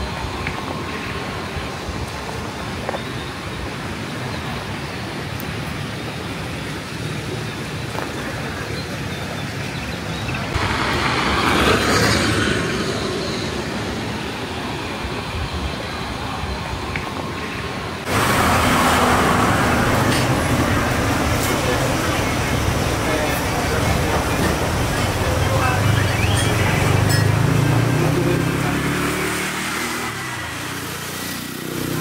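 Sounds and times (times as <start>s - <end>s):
road traffic noise: 0.0s - 32.0s
vehicle passing close: 10.5s - 14.7s, 18.0s - 32.0s.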